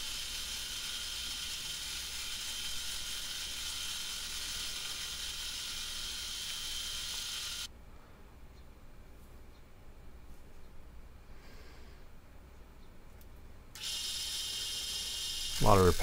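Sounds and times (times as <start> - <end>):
milling machine cutting steel: 0.0 - 7.7, 13.8 - 16.0.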